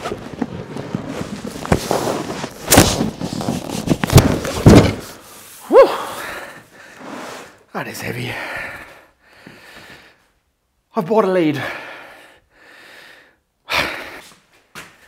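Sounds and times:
cardboard scraping: 0:00.0 - 0:05.6
box thudding on wooden bench: 0:04.1 - 0:05.1
person grunting: 0:05.7 - 0:06.3.

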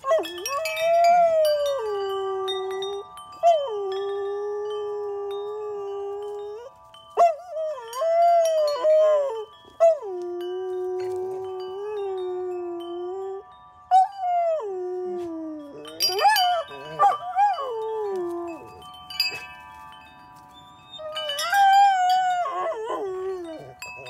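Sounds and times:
metal wind chimes ringing: 0:00.0 - 0:24.0
dog howling: 0:21.0 - 0:24.0.

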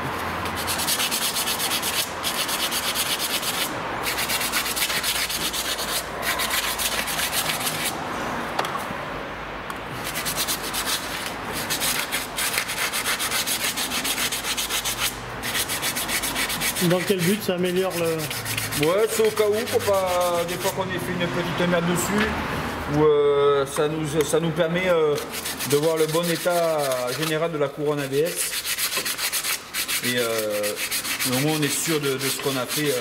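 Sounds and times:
emery cloth scratching metal: 0:00.5 - 0:08.0, 0:10.0 - 0:20.8, 0:25.1 - 0:33.0.

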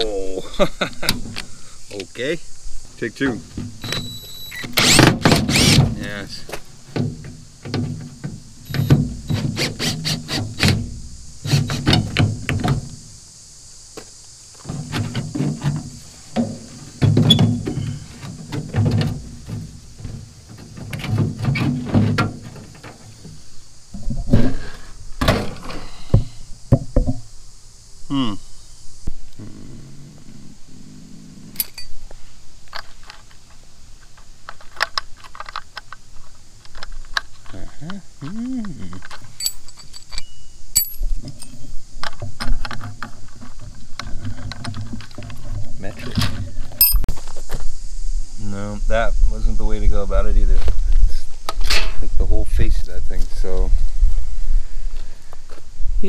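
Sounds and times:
cordless drill motor: 0:04.0 - 0:05.8
wrench clinking on metal fittings: 0:39.3 - 0:41.6, 0:46.8 - 0:47.0.

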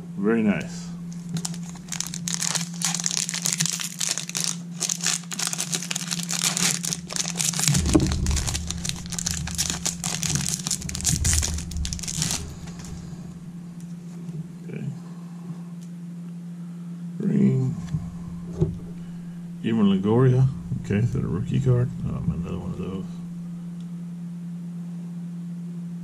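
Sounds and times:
foil wrapper crinkling: 0:01.1 - 0:12.9.

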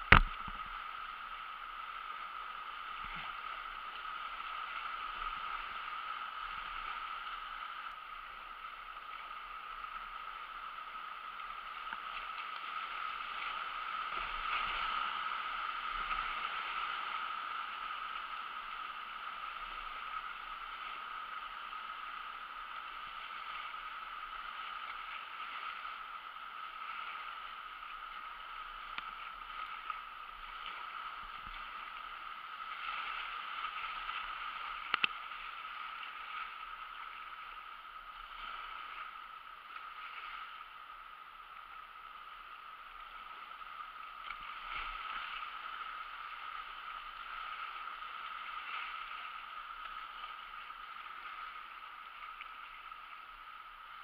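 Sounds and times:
river current rushing and splashing: 0:00.0 - 0:54.0
sharp knock on kayak hull: 0:00.1 - 0:00.5.

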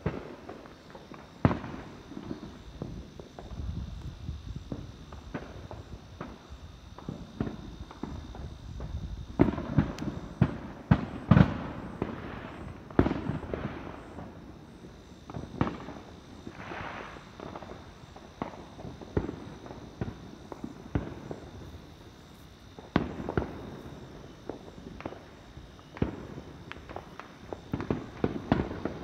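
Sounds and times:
firecrackers bangs and pops: 0:00.0 - 0:29.0.

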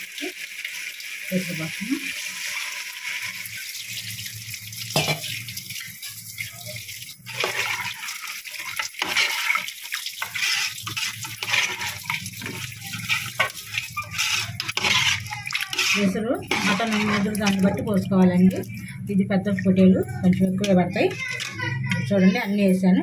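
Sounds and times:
water pouring and splashing: 0:00.0 - 0:22.6.

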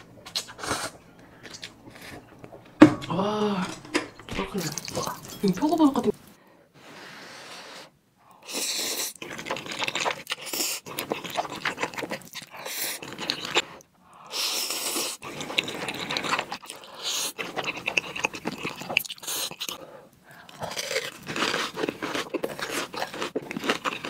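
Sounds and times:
wet chewing: 0:04.5 - 0:05.9, 0:08.5 - 0:24.0.

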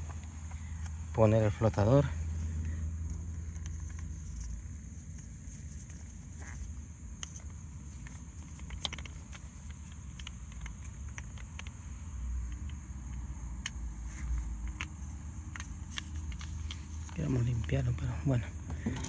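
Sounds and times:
plastic parts clicking and tapping: 0:05.1 - 0:19.0.

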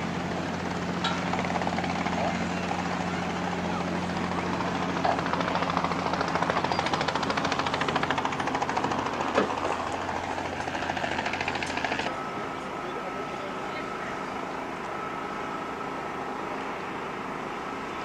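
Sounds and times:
engine droning with rough pulsing: 0:00.0 - 0:18.0
thin high whine: 0:11.8 - 0:18.0.

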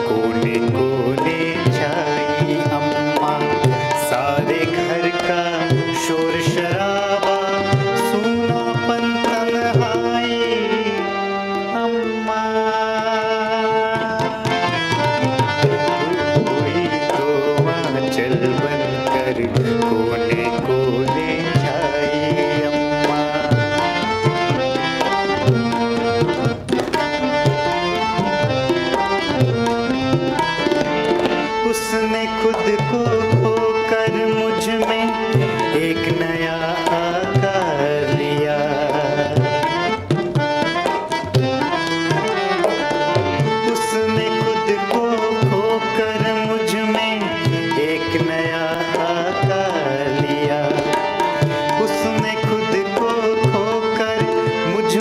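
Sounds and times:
harmonium chords: 0:00.0 - 0:55.0
tabla rhythm: 0:00.0 - 0:55.0.

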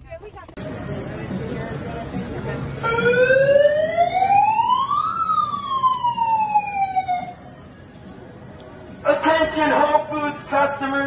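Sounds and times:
siren wail: 0:02.8 - 0:07.5.

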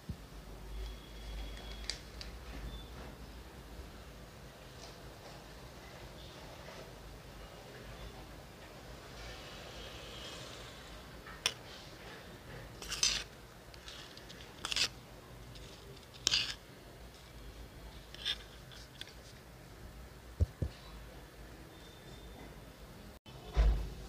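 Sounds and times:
metal spoon scraping steel bowl: 0:12.8 - 0:16.6, 0:18.1 - 0:18.9.

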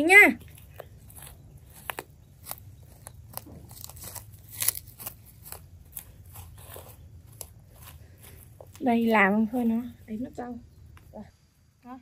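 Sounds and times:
roots snapping and crackling: 0:00.4 - 0:08.9.

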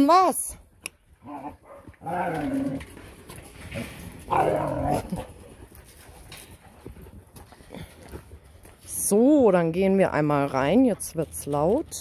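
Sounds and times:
young dogs barking and yowling: 0:03.7 - 0:06.0.

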